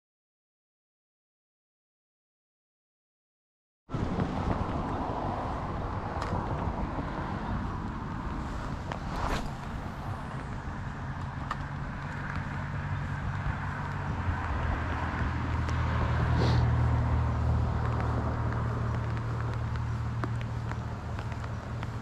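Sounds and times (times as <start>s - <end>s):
vehicle engine hum: 3.9s - 22.0s.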